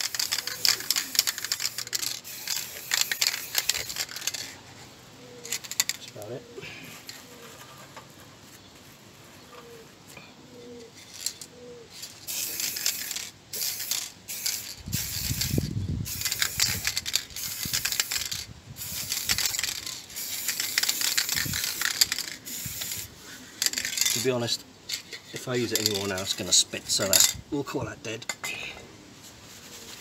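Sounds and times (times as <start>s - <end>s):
aerosol spray can hissing: 0.0s - 4.0s, 12.3s - 23.1s.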